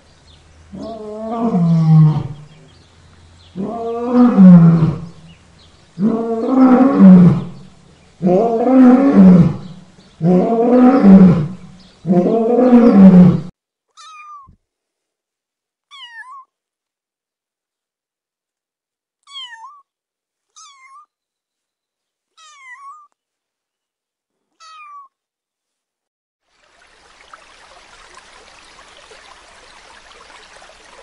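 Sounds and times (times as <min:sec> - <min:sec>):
lion roaring: 0:00.7 - 0:02.7, 0:03.5 - 0:05.3, 0:06.0 - 0:13.5
faint high-pitched calls: 0:13.9 - 0:14.6, 0:15.9 - 0:16.6, 0:20.5 - 0:21.2, 0:22.4 - 0:23.2, 0:24.6 - 0:25.2.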